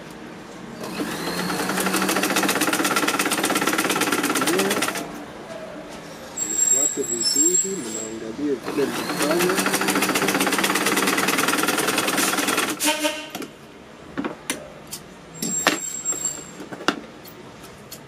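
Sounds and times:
sewing machine stitching: 0.8 - 5.1, 8.6 - 12.9.

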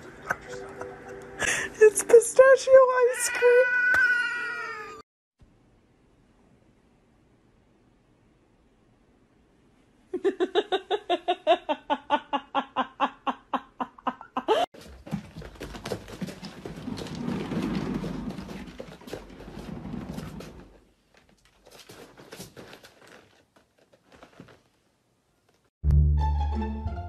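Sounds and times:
cat meowing rapidly: 3.1 - 5.0
rustling and scraping: 14.8 - 25.7.

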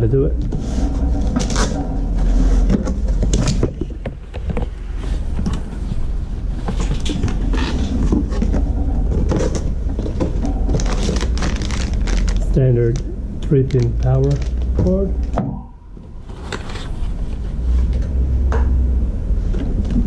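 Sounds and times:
low hum: 0.0 - 20.0
cardboard box being opened: 6.7 - 12.6.

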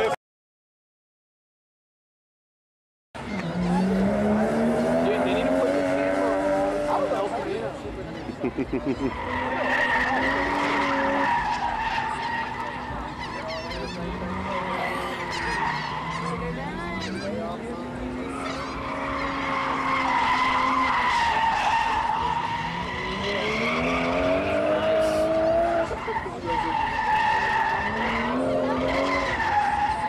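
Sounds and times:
car engine revving hard: 3.3 - 7.5, 14.0 - 30.0.

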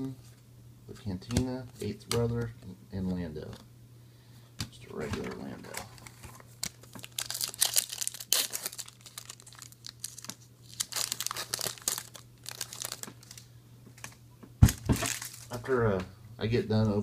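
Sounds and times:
foil wrapper crinkling and tearing: 6.0 - 14.2, 15.0 - 15.6.

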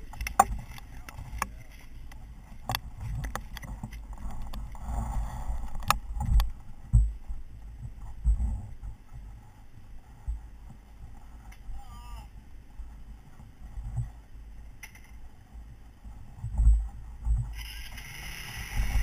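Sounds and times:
thumps against microphone: 5.8 - 7.2.

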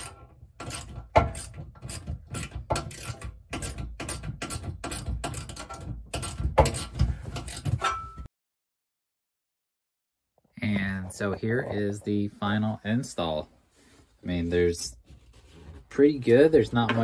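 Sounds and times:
hand ratchet clicking: 0.0 - 7.7.

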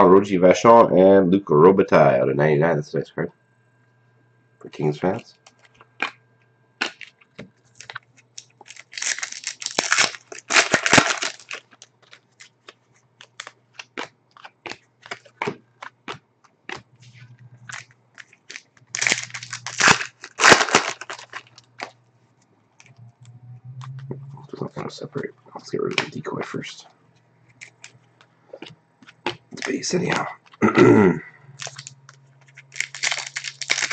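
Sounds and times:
wrapper crinkling and tearing: 7.7 - 16.0, 17.1 - 22.0, 27.6 - 28.0, 29.5 - 30.6, 31.6 - 33.9.

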